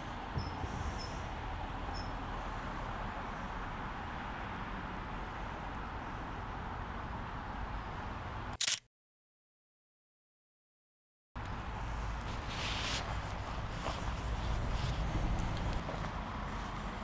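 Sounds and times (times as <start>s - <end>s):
high bird chirps: 1.9s - 2.2s.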